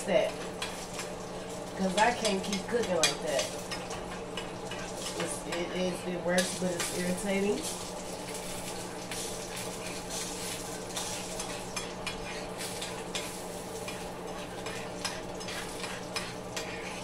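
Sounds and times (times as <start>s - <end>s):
eggs sizzling in a skillet: 0.0s - 17.0s
metal spoon scraping a pan: 0.2s - 17.0s.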